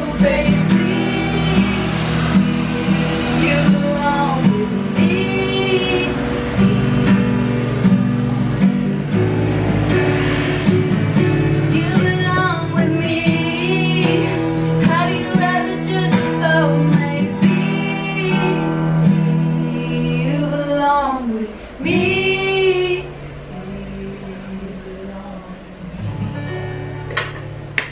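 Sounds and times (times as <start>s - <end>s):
two women singing: 0.0s - 2.4s, 3.2s - 7.2s, 11.7s - 25.9s
strummed ukulele: 0.0s - 27.9s.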